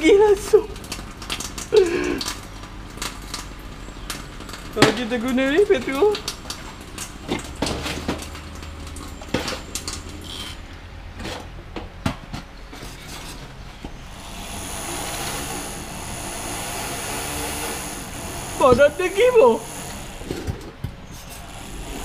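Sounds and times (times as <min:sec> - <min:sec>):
rotary tool whining: 0:14.0 - 0:22.0.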